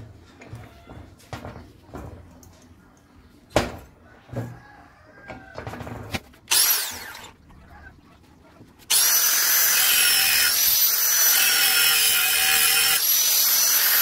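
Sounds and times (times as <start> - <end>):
angle grinder running: 6.5 - 7.2, 8.9 - 14.0.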